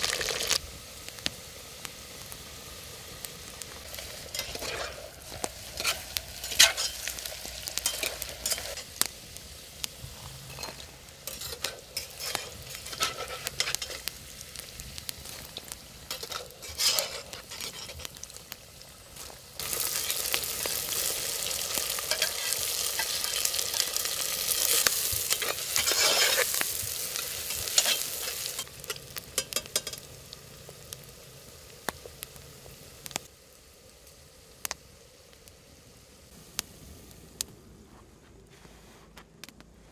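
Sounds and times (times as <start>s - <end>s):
food sizzling in a pan: 0.0s - 37.4s.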